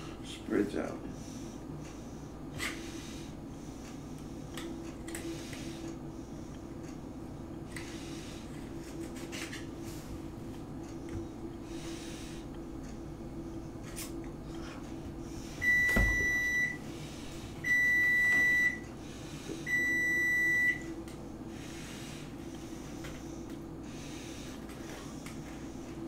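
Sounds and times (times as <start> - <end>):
appliance beeping: 15.6 - 16.9, 17.6 - 19.0, 19.6 - 21.1.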